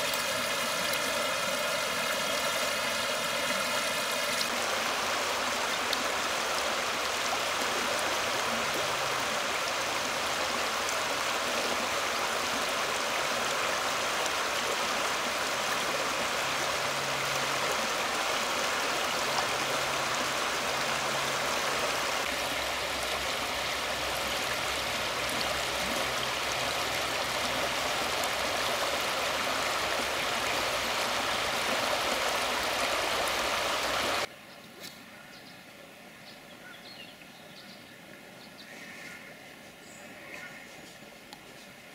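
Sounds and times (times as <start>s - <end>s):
river rushing over rocks: 0.0s - 34.3s.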